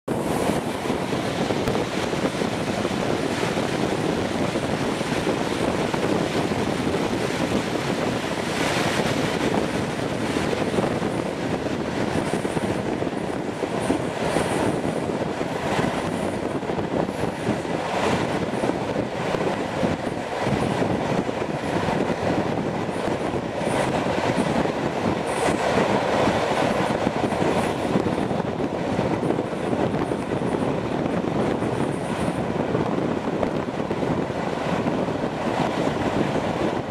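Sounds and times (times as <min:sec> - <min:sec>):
rushing air: 0:00.0 - 0:36.9
train wheels rumbling on rails: 0:00.0 - 0:36.9.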